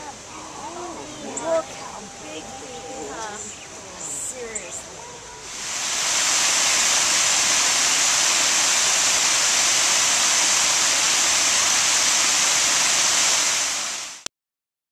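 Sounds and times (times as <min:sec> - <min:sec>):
waterfall rushing over rocks: 0:05.4 - 0:14.3.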